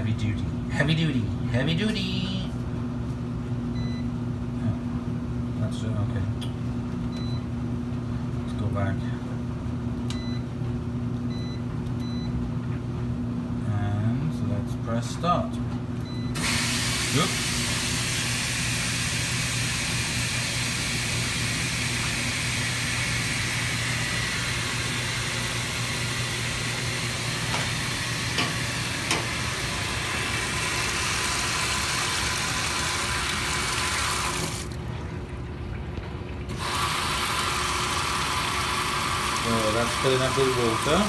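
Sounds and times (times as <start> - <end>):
water pouring into washing machine: 16.5 - 41.0.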